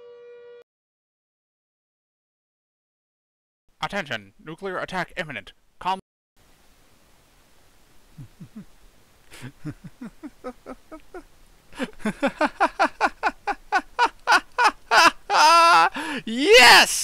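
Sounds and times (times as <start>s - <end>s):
man laughing: 8.1s - 17.0s.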